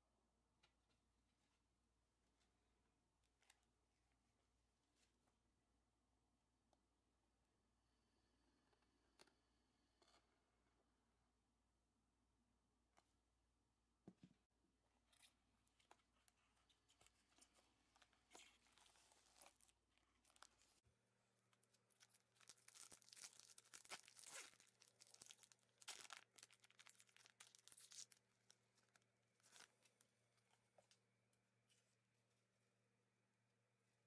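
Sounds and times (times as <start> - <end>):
plastic packaging rustling: 21.6 - 29.8
plastic wrapper tearing and crinkling: 21.6 - 29.8.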